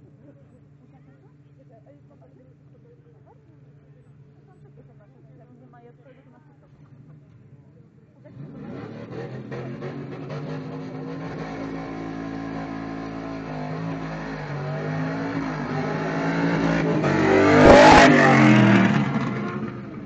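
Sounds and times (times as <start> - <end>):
race car accelerating past: 8.3 - 20.0.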